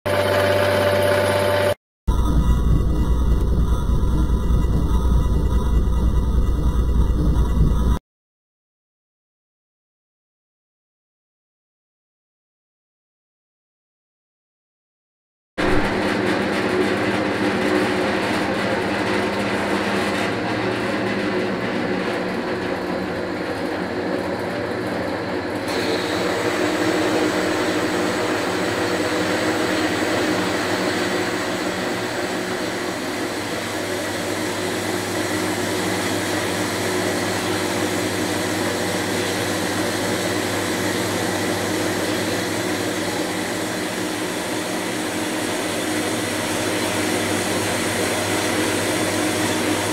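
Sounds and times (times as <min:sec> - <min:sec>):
bandsaw cutting steel: 0:25.7 - 0:49.9.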